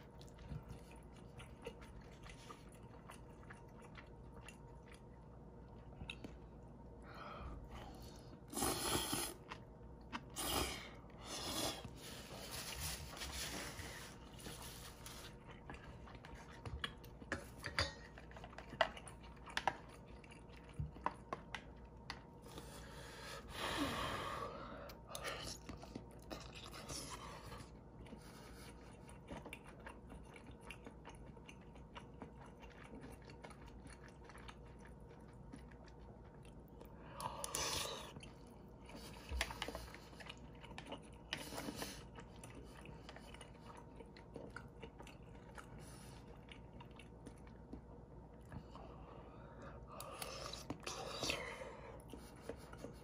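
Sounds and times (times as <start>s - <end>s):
person chewing: 0.0s - 23.9s, 24.8s - 53.0s
slurping noodles: 8.5s - 9.5s, 10.2s - 15.4s.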